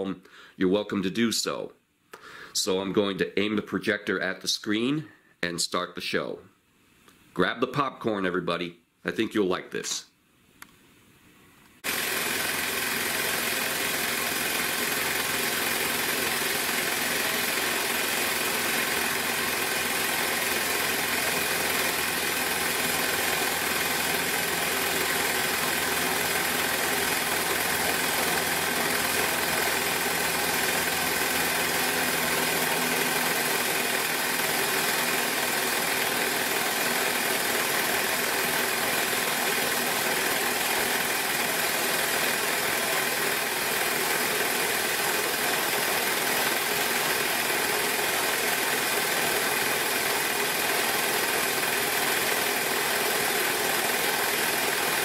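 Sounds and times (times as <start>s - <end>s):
film projector motor whirring: 11.8s - 55.0s.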